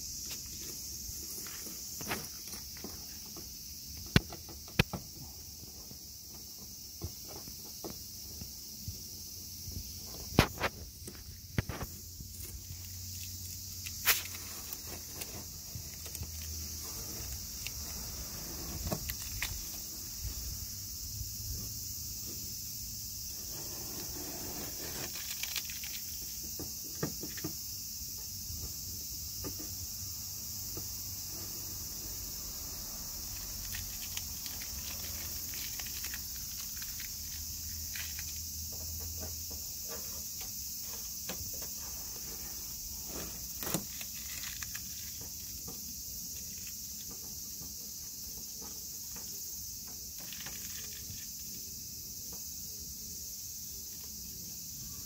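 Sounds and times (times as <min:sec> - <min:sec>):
steady high-pitched hiss: 0:00.0 - 0:55.0
masking tape tearing and crinkling: 0:11.7 - 0:19.8, 0:33.4 - 0:38.3, 0:43.1 - 0:45.1.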